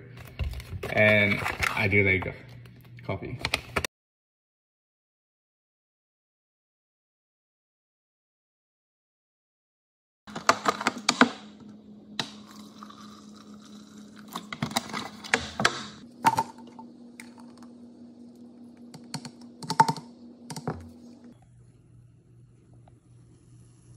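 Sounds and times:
low hum: 10.3s - 23.9s
plastic cups clicking on countertop: 19.0s - 20.8s.

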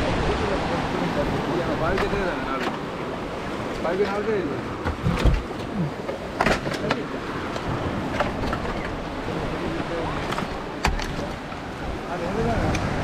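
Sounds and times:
small waves washing onto beach: 0.0s - 13.0s
knocks and clicks on boat: 1.8s - 9.2s, 10.2s - 13.0s.

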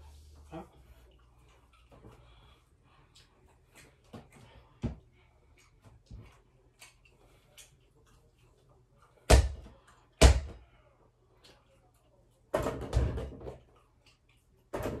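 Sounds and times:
basketball bouncing on hard floor: 9.3s - 10.6s, 12.6s - 13.6s
ball clattering against backboard and door: 12.6s - 13.6s.

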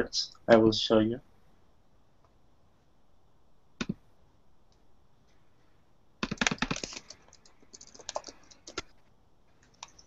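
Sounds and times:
computer keyboard typing: 6.2s - 9.0s, 9.6s - 10.0s.

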